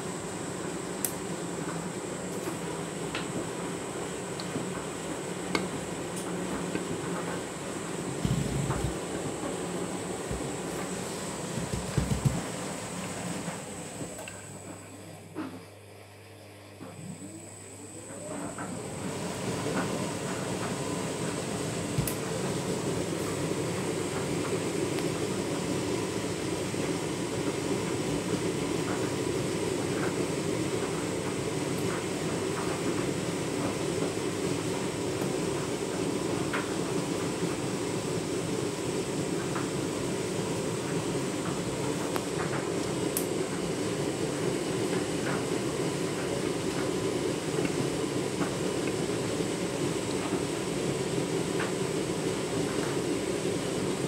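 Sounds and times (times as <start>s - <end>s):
washing machine drum rumbling: 0.0s - 14.7s, 18.2s - 37.7s.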